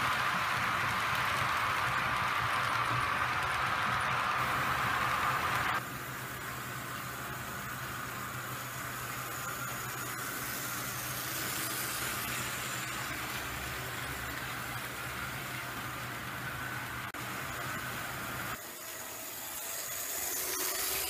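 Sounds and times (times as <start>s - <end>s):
wheels rattling on rails: 0.0s - 5.8s
model train motor humming: 0.0s - 21.0s.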